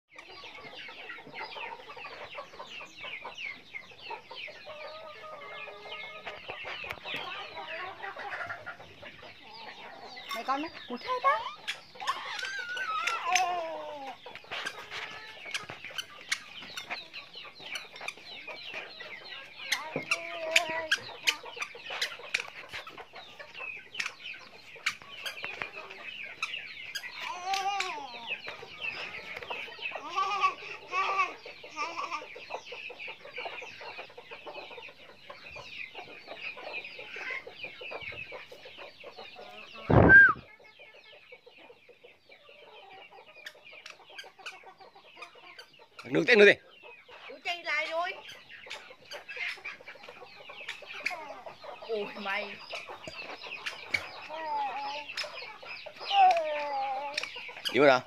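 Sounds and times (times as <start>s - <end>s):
chickens clucking: 0.1s - 58.0s
steady high chirping: 14.1s - 56.1s.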